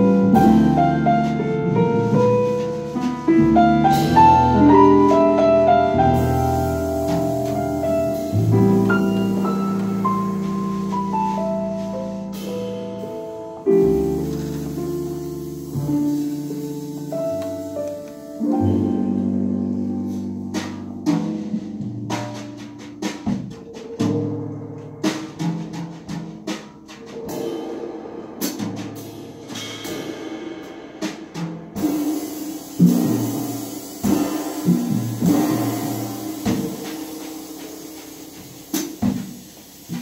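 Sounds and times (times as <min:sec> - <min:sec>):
drum strikes: 0:00.0 - 0:19.2, 0:19.8 - 0:40.0
jazz band playing: 0:00.0 - 0:27.6, 0:28.3 - 0:40.0
cymbal wash: 0:31.8 - 0:40.0.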